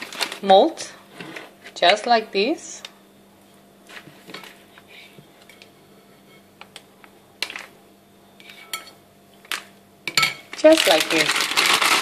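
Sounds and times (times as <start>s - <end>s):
plastic piping bag rustling: 0.0s - 0.7s, 10.5s - 12.0s
spatula scraping a bowl: 8.4s - 9.0s.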